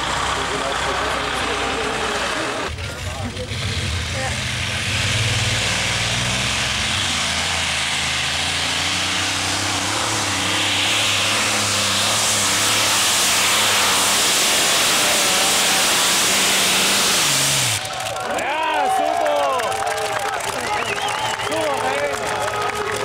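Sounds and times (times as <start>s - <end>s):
pulling tractor engine running flat out: 0.0s - 23.0s.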